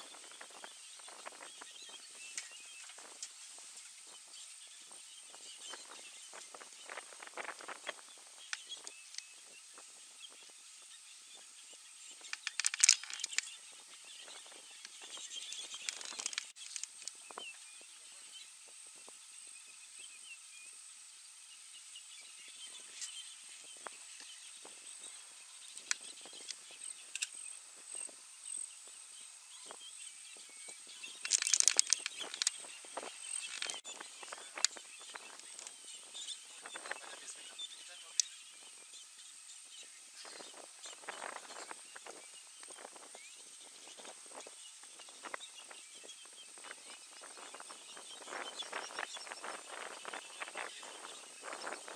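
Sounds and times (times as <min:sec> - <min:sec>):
crackles and snaps: 0:02.3 - 0:04.1, 0:12.1 - 0:17.6, 0:25.7 - 0:28.2, 0:30.4 - 0:38.4.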